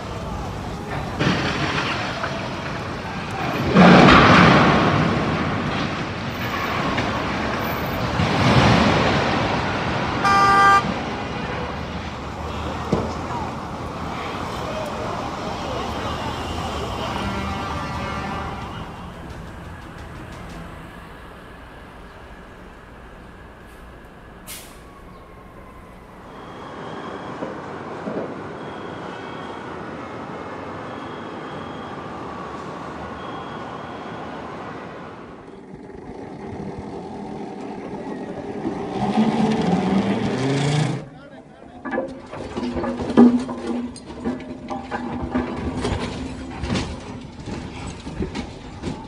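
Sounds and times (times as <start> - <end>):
street traffic: 0.0 - 49.0
loud crash of falling crane boom: 0.9 - 11.4
sharp hiss: 20.4 - 25.1.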